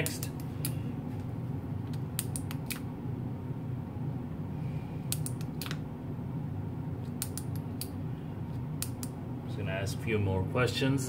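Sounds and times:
steady low hum: 0.0 - 11.0
sharp small clicks: 1.9 - 2.9, 5.1 - 5.8, 7.0 - 8.0, 8.8 - 9.2.

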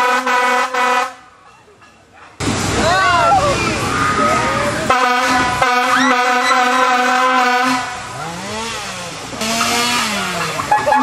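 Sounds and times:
air horn blasting: 0.0 - 1.2, 4.9 - 8.2, 9.4 - 10.5.

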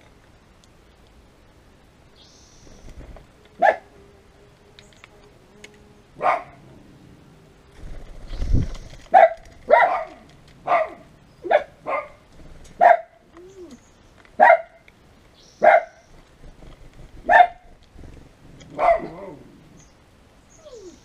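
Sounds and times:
dog barking: 3.6 - 3.9, 6.2 - 6.6, 9.1 - 12.2, 12.8 - 13.2, 14.4 - 14.8, 15.6 - 16.0, 17.2 - 17.7, 18.7 - 19.3.

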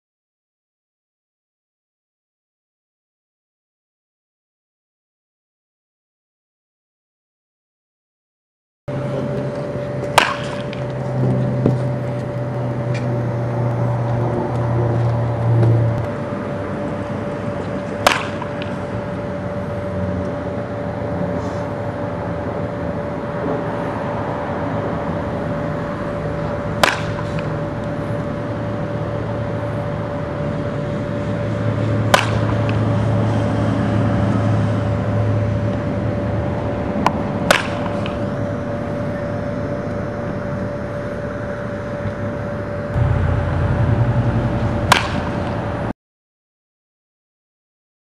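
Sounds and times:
outdoor background rumble: 8.9 - 45.9
steady hum: 8.9 - 45.9
baseball bat hitting ball: 10.0 - 11.8, 17.3 - 19.0, 26.6 - 28.2, 32.0 - 33.0, 37.0 - 38.4, 44.7 - 45.6.

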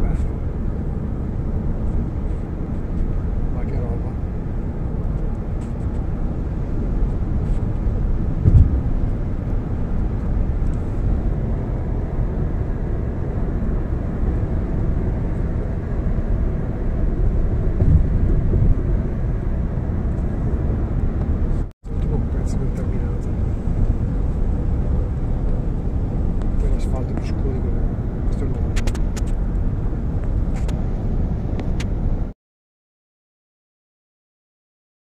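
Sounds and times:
car cabin road rumble: 0.0 - 32.3
thump: 8.4 - 8.8.

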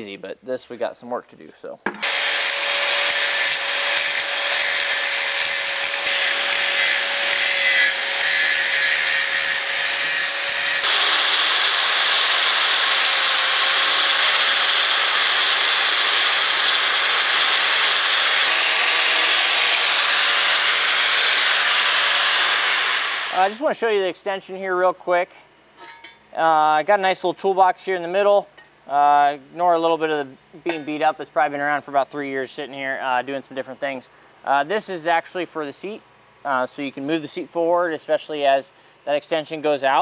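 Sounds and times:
angle grinder grinding metal: 2.0 - 23.6.

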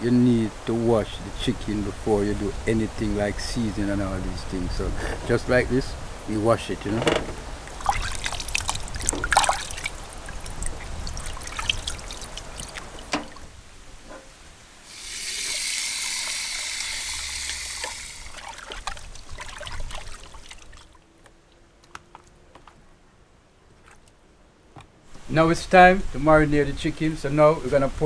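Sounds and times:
faint handling taps: 6.8 - 7.7
tap running: 6.9 - 8.0
water splashing in a pot: 7.6 - 13.5, 14.9 - 21.0.

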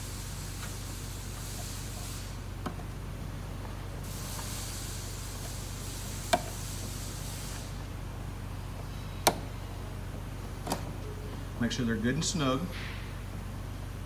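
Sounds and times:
faint hiss: 0.0 - 2.6, 4.0 - 7.9
steady low hum: 0.0 - 14.0
connectors clicking into sockets: 10.6 - 10.9.

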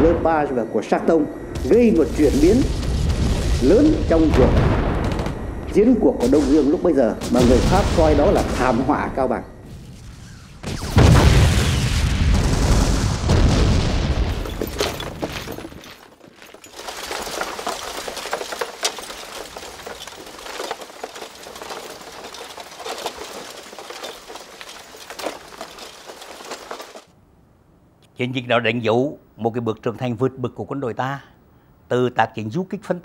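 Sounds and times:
heavy explosion rumbling: 1.6 - 5.6, 6.3 - 8.9, 10.6 - 15.2.

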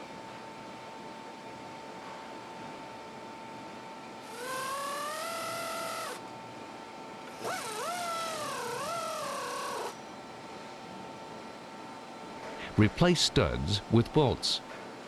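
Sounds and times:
power wrench whining: 4.3 - 6.2, 7.3 - 10.0.

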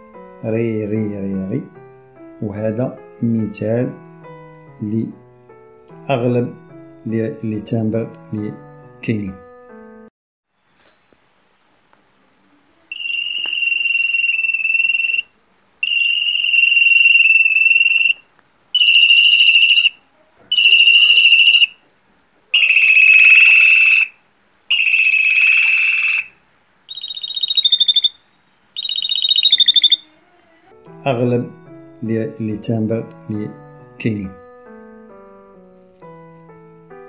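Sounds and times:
canary singing metallic rolls: 12.9 - 18.2, 18.8 - 21.8, 22.5 - 30.7.

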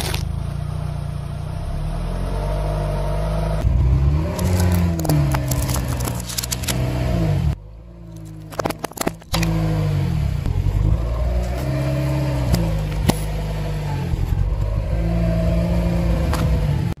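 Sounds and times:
car engine at low speed: 0.0 - 17.0
sharp cracks: 4.2 - 7.0.

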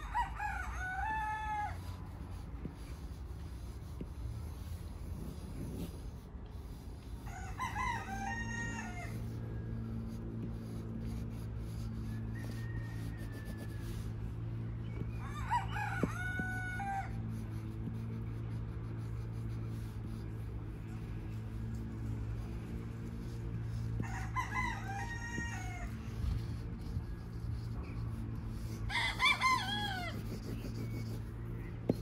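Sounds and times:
rooster crowing: 0.0 - 2.0, 7.2 - 9.4, 12.0 - 14.2, 14.8 - 17.3, 23.2 - 26.5, 27.5 - 32.0
steady low hum: 0.0 - 32.0.

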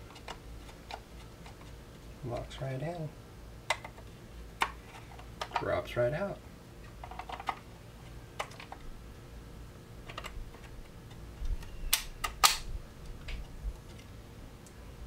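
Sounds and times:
rifle magazine clicking into place: 11.9 - 12.7.

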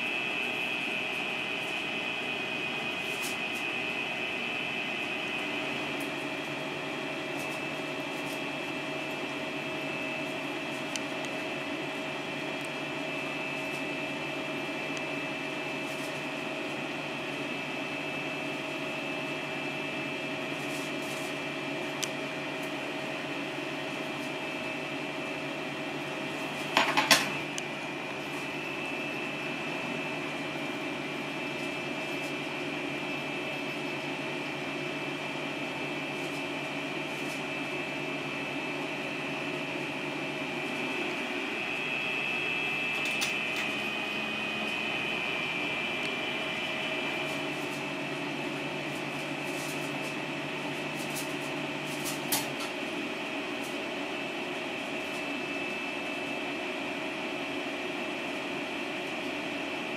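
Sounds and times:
faint high whine: 0.0 - 26.6, 27.3 - 52.3
room hum: 0.0 - 59.9.

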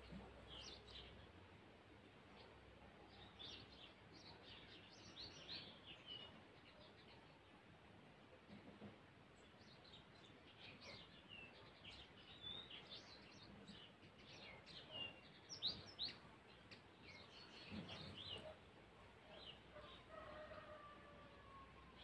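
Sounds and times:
small birds chirping: 0.0 - 1.4, 2.2 - 22.0.

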